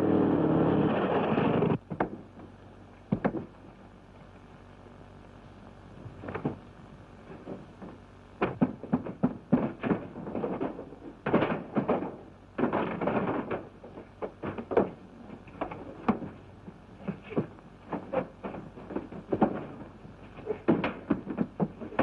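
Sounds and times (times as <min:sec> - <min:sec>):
fistfight knocks and thumps: 0:03.1 - 0:03.6, 0:07.4 - 0:22.0.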